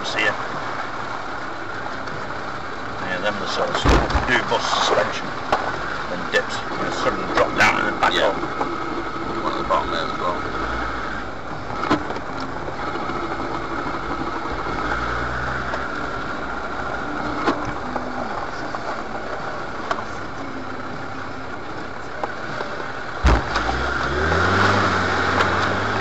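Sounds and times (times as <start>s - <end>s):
car engine running: 0.0s - 26.0s
sharp thump: 3.8s - 4.3s, 23.2s - 23.7s.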